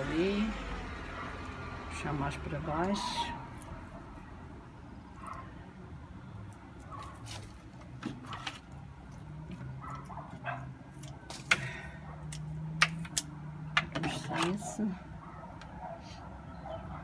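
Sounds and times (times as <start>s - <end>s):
dry roots and string rustling: 1.3s - 4.4s, 6.1s - 13.4s.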